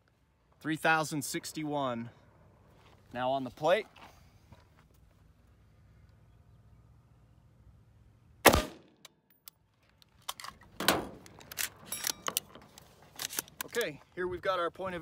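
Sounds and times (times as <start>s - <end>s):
rifle shot: 8.4s - 9.0s.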